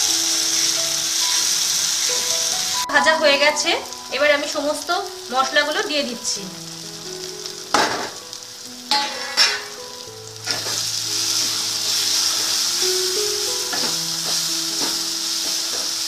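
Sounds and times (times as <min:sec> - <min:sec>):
masala sizzling in hot oil: 0:00.0 - 0:16.0.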